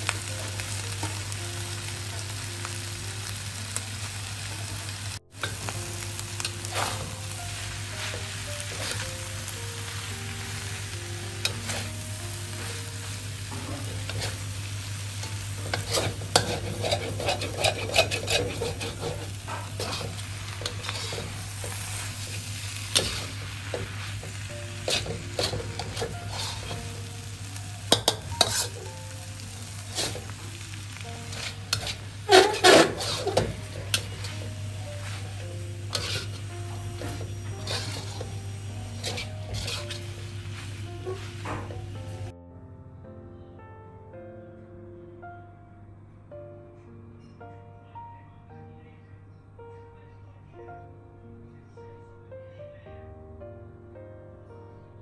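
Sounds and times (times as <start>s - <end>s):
food sizzling in a wok: 0.0s - 42.3s
metal spatula scraping wok: 5.4s - 42.3s.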